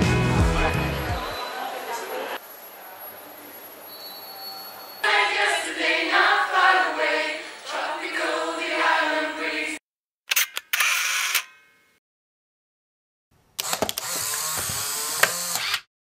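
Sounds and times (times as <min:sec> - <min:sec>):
voices singing drawn-out notes: 0:00.0 - 0:02.4, 0:05.0 - 0:09.8
sharp clicks: 0:13.6 - 0:15.9.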